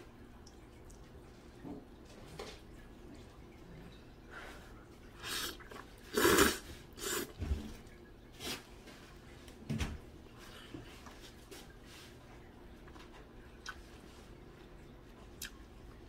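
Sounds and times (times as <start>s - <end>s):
person slurping noodles: 5.2s - 7.4s.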